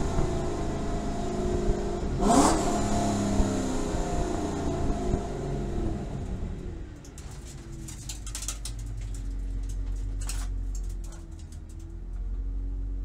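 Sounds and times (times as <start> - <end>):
car engine idling: 0.0 - 13.0
gravel clicking under tyres: 6.0 - 12.6.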